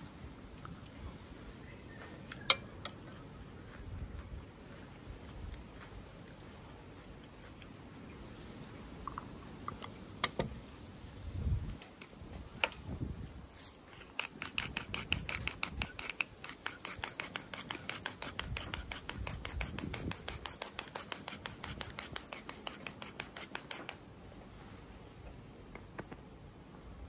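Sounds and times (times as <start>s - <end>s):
pepper grinder clicking: 14.1s - 24.0s.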